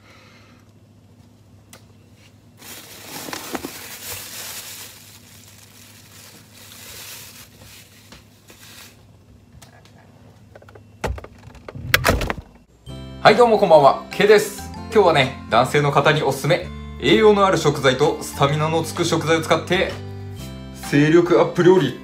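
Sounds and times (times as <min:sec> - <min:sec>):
plastic packaging crinkling: 0:02.6 - 0:09.1.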